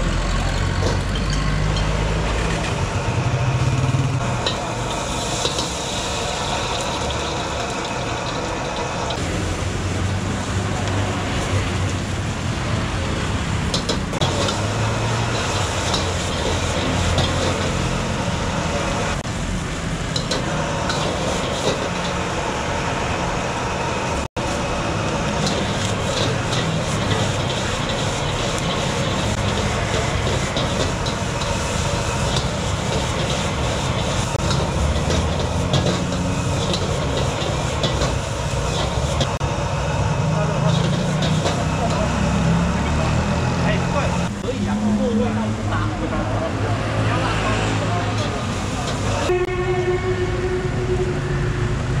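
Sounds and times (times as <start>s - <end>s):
gas burner roaring: 0.0s - 52.0s
metal ladle scraping wok: 13.6s - 19.2s, 25.2s - 39.4s, 40.6s - 42.1s.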